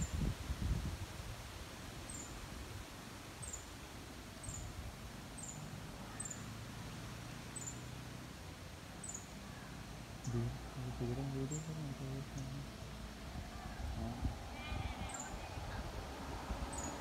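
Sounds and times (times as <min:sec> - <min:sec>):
low outdoor rumble: 0:04.3 - 0:17.0.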